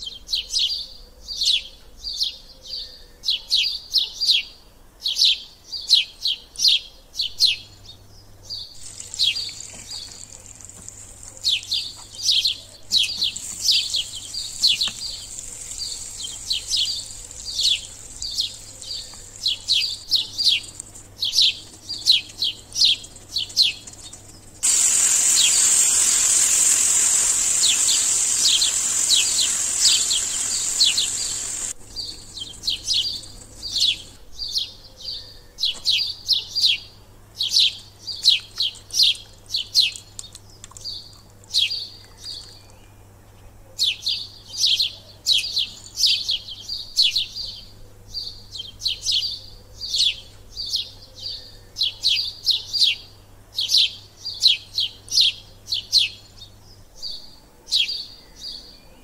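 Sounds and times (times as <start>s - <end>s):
small bird chirping: 7.2s - 36.2s
loud steady hiss: 8.8s - 21.5s, 24.6s - 34.2s.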